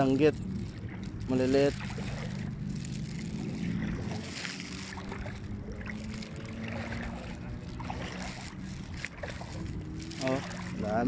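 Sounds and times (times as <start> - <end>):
low motor drone: 0.0 - 11.0
seawater lapping and trickling: 0.0 - 11.0
small water splashes: 0.0 - 11.0.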